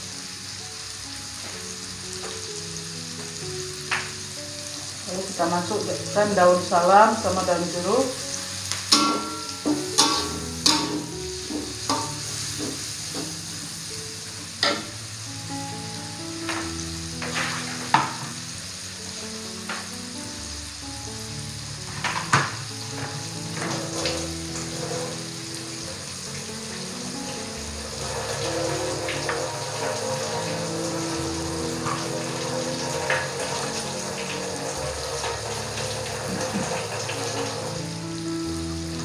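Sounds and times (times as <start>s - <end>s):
food sizzling in hot oil: 0.0s - 39.0s
metal spatula scraping a wok: 8.9s - 13.8s.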